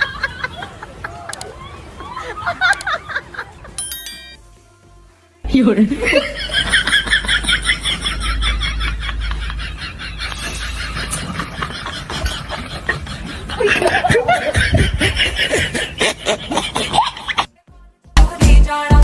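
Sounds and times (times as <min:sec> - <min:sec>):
crowd noise: 0:00.0 - 0:03.8
people laughing: 0:00.0 - 0:03.8, 0:05.9 - 0:17.5.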